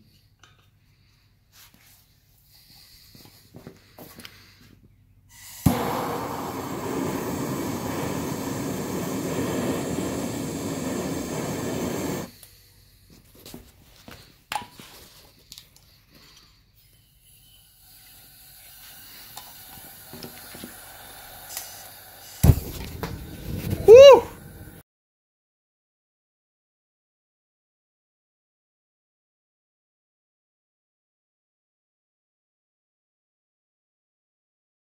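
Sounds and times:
gas burner hissing: 5.3 - 13.2, 16.7 - 24.8
loud thump: 22.4 - 23.8.

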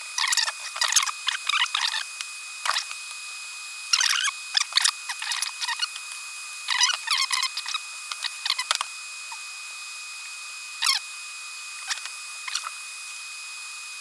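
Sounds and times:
hand tool clicks and scrapes: 4.0 - 8.9.

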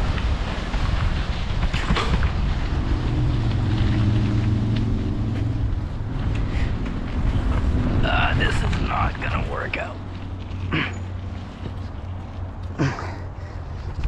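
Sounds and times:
bike knocking over bumps: 0.0 - 2.7
wind rushing over microphone: 0.0 - 12.6
low steady hum: 0.0 - 14.0.

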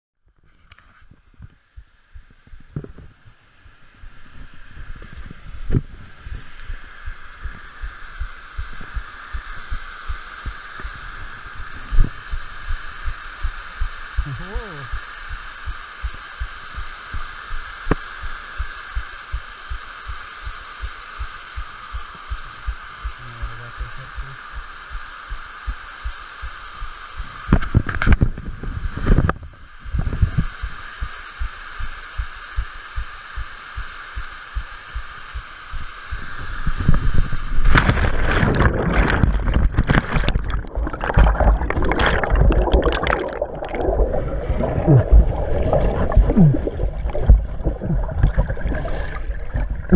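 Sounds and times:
steady hiss: 0.7 - 49.9
soft low thumps: 1.3 - 3.2, 5.0 - 11.0, 29.1 - 48.8
burst of noise: 36.2 - 49.9
underwater churning and gurgling: 36.8 - 49.9
splash into water: 37.7 - 49.6.

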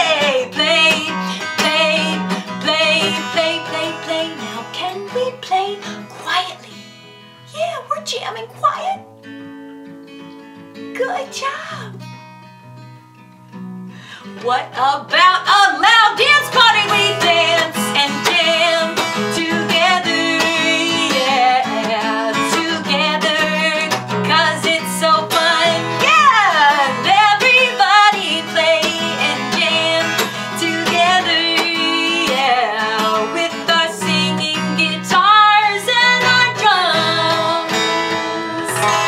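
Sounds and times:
woman singing: 0.0 - 6.9, 14.2 - 39.0
acoustic guitar strumming: 0.0 - 39.0.

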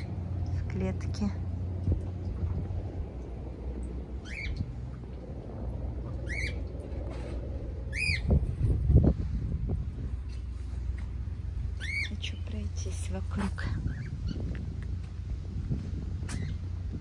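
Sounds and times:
low rumble on microphone: 0.0 - 17.0
parrots squawking: 4.2 - 4.6, 6.2 - 6.6, 7.9 - 8.3, 11.8 - 12.1.

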